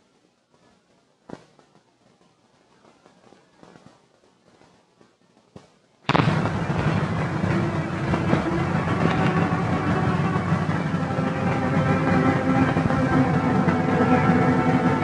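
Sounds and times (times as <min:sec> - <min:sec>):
film soundtrack hiss and crackle: 0:00.0 - 0:15.0
sharp pops: 0:01.3 - 0:10.8
loud film opening music: 0:06.1 - 0:15.0.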